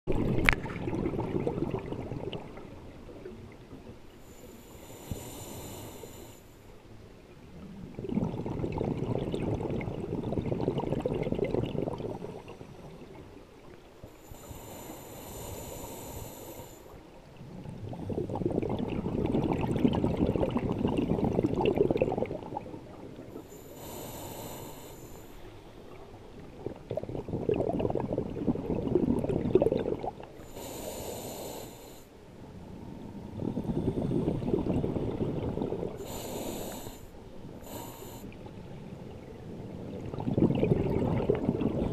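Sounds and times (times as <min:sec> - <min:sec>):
bubbling exhalations underwater: 0:00.1 - 0:02.5, 0:08.0 - 0:12.6, 0:17.9 - 0:22.8, 0:26.5 - 0:30.3, 0:40.0 - 0:41.9
regulator inhalation hiss: 0:04.3 - 0:06.7, 0:14.2 - 0:16.9, 0:23.5 - 0:25.6, 0:30.4 - 0:32.1, 0:36.0 - 0:38.4.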